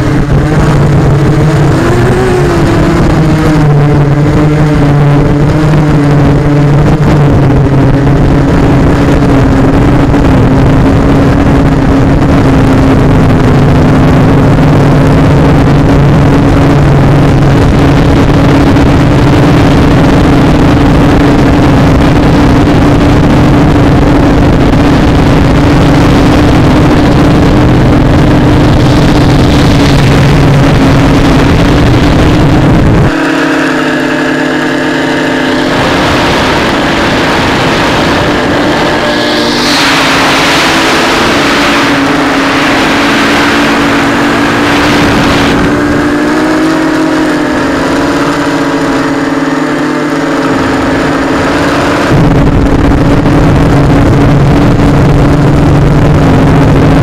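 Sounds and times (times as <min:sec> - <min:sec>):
drone motors and propellers: 0:00.0 - 0:57.0
air rushing past: 0:28.6 - 0:54.3.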